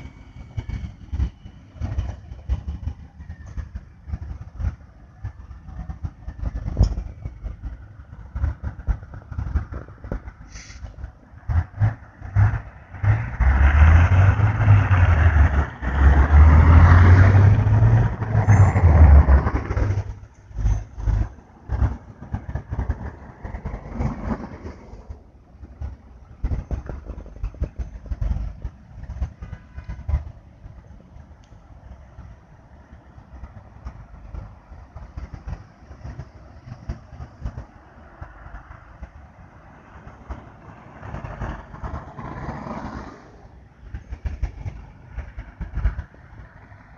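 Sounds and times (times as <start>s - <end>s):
freeway traffic rumbling: 0.0s - 46.9s
vehicle rushing past: 6.3s - 27.1s, 39.6s - 46.9s.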